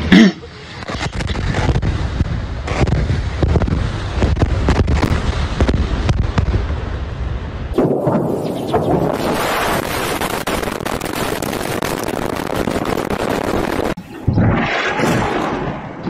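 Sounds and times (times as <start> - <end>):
rushing wind-like noise: 0.0 - 16.0
fire cracking and popping: 0.8 - 6.7, 9.0 - 15.5
low rumble: 10.8 - 16.0.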